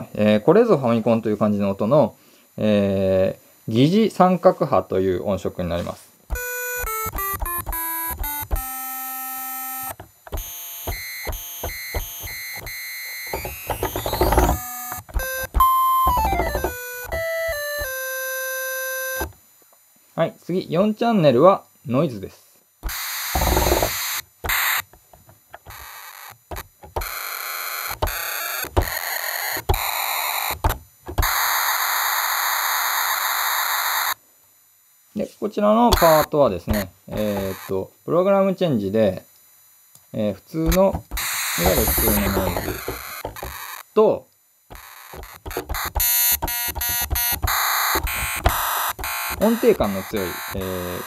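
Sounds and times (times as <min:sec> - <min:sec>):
chiptune synth notes: 0:06.3 - 0:19.3, 0:23.4 - 0:24.7, 0:36.0 - 0:37.7, 0:40.7 - 0:43.6, 0:44.7 - 0:51.0.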